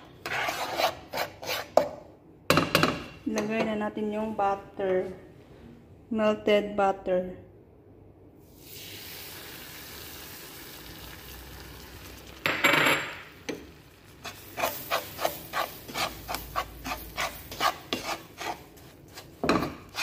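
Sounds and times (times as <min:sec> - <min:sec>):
wooden spatula scraping metal pan: 0:00.0 - 0:02.0, 0:14.2 - 0:20.0
butter sizzling in a pan: 0:08.6 - 0:12.4.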